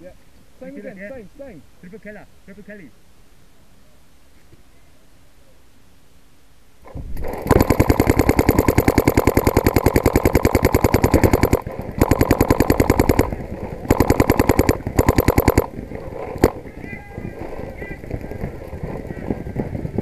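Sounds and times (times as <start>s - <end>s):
paintball marker firing bursts: 7.2s - 16.6s.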